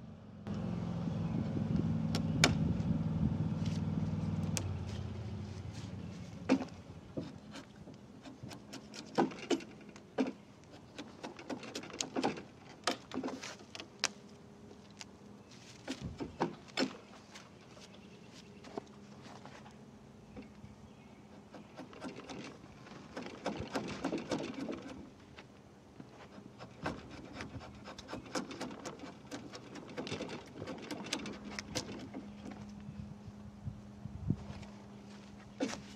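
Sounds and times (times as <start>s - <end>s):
low engine hum: 0.0s - 8.0s, 29.0s - 35.9s.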